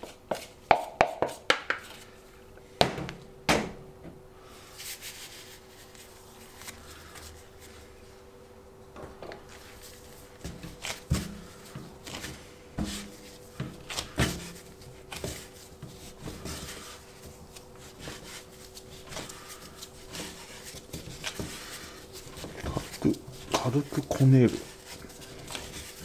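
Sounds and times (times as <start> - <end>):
bread dough kneading thuds: 0.0 - 2.0, 8.9 - 26.0.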